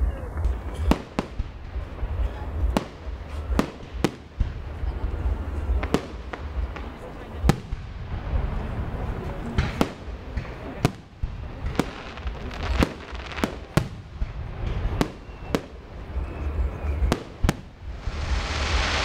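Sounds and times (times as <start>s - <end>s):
fireworks bursting with sharp bangs: 0.0s - 19.0s
steady low rumble: 17.7s - 19.0s.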